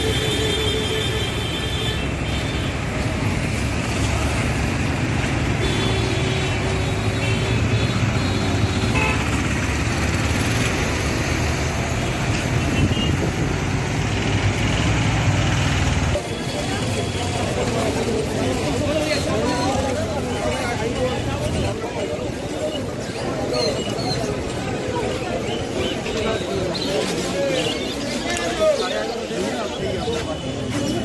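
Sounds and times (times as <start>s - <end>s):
passing vehicle engines: 2.0s - 31.0s.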